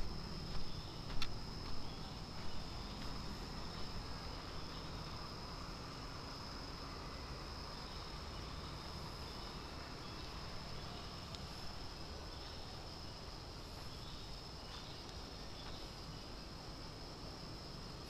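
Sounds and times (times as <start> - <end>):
constant low rumble: 0.0 - 18.0
insects droning: 0.0 - 18.0.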